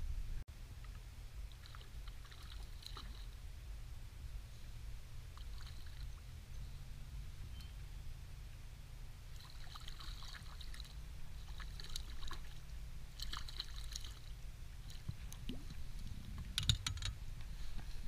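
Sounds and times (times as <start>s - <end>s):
wind rumble on microphone: 0.0s - 0.4s, 14.6s - 18.0s
water splashing and trickling: 0.8s - 3.5s, 4.4s - 6.6s, 7.3s - 16.8s
fishing tackle clicking and rattling: 16.5s - 17.2s.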